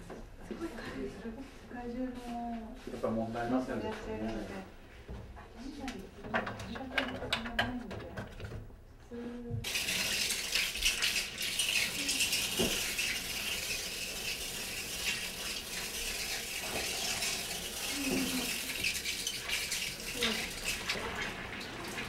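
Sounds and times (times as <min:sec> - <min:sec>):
water spraying into a bath: 0:09.6 - 0:22.0.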